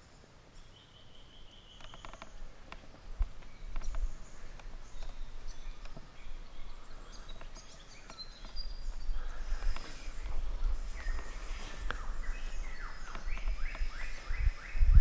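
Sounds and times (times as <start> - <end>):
birds chirping: 0.0 - 15.0
wind rumble on microphone: 2.2 - 15.0.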